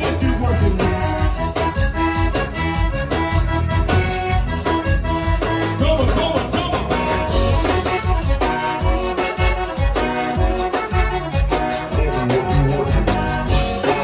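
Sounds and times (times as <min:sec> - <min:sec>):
accordion: 0:00.0 - 0:14.0
drums: 0:00.0 - 0:14.0
electric bass: 0:00.0 - 0:14.0.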